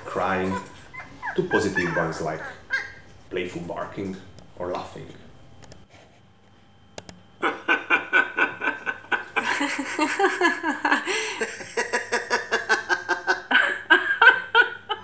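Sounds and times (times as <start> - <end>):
person laughing: 1.2 - 2.4, 7.4 - 15.0.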